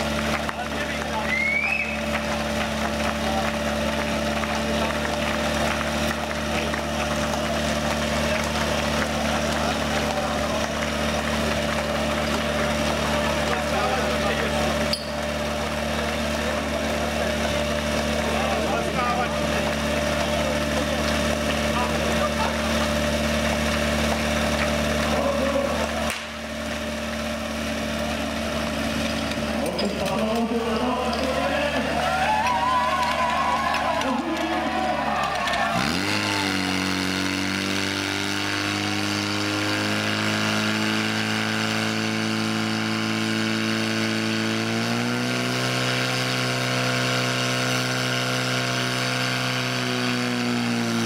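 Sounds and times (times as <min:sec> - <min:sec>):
pump engine idling: 0:00.0 - 0:39.5.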